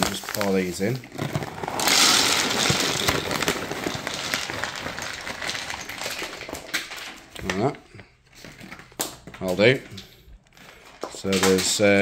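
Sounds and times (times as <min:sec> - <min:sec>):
pellets pouring into plastic hopper: 0:00.0 - 0:07.7.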